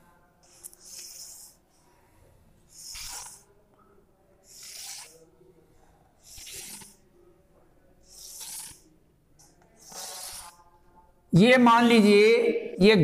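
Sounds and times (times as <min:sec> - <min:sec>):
chalk scratching on blackboard: 0:00.4 - 0:01.7, 0:02.7 - 0:03.5, 0:04.4 - 0:05.2, 0:06.2 - 0:07.0, 0:08.1 - 0:08.8, 0:09.8 - 0:10.7.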